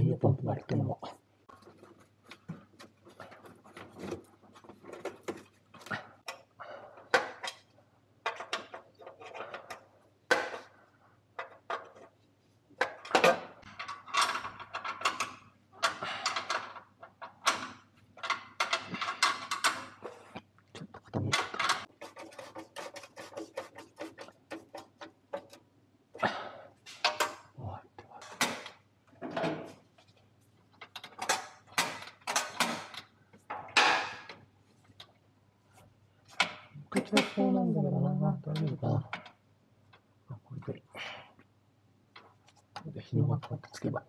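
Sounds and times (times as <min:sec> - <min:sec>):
metallic clicks and clanks: 0:12.8 - 0:20.1.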